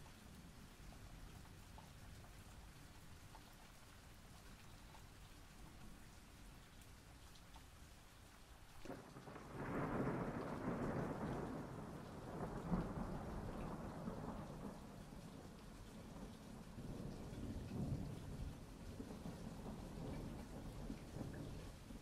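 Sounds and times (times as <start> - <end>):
steady rain: 0.0 - 22.0
thunder rolling: 8.9 - 14.8.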